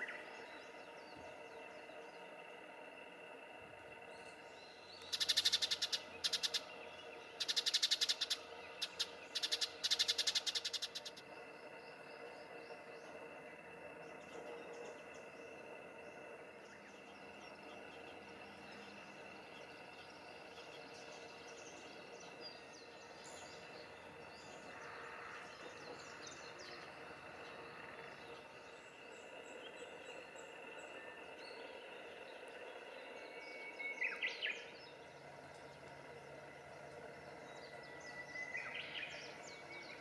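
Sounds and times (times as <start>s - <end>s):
birds chirping: 0.0s - 40.0s
faint steady hum: 0.0s - 40.0s.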